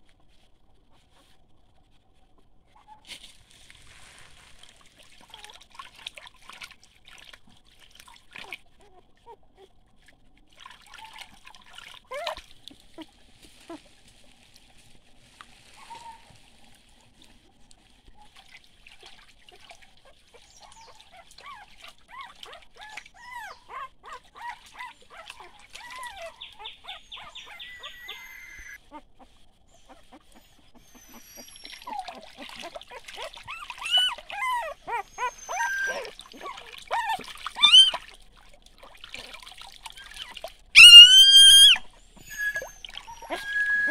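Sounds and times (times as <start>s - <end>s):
stream water trickling and splashing: 0.0s - 43.9s
puppies whimpering and squealing: 20.6s - 38.0s, 40.0s - 43.9s.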